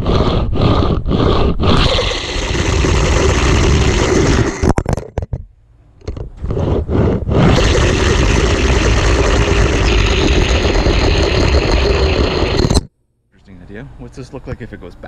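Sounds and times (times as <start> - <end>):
toy car wheels rolling on track: 0.0 - 4.7, 7.4 - 12.8.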